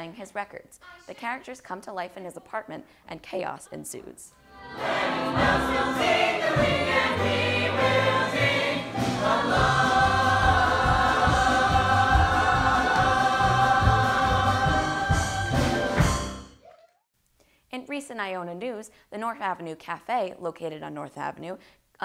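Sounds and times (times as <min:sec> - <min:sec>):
cast singing together: 0:04.4 - 0:16.0
band accompaniment with beat: 0:05.1 - 0:16.5.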